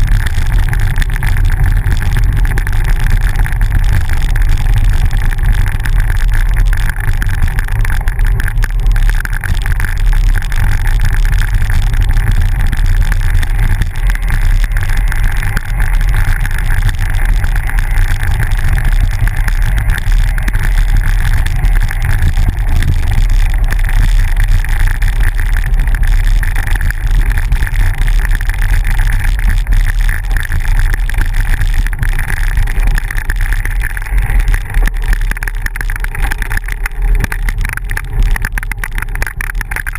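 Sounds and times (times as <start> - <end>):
bicycle rumble on gravel road: 0.0 - 39.9.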